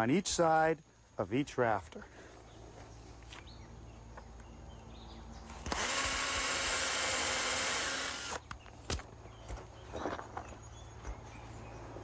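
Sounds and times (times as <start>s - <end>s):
power drill driving screw into wood: 5.5s - 8.6s.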